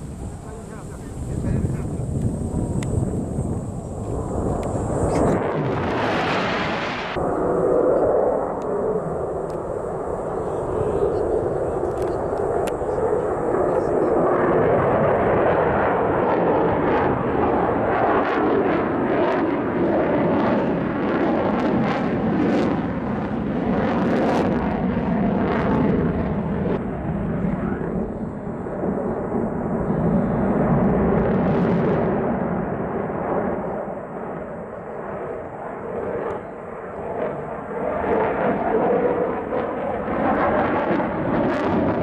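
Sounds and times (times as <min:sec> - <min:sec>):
jet engines roaring: 0:00.0 - 0:42.0.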